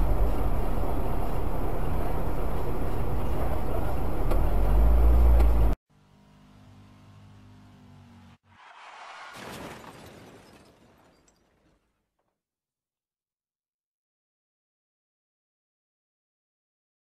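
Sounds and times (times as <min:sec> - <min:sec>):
car engine and road noise: 0:00.0 - 0:09.5.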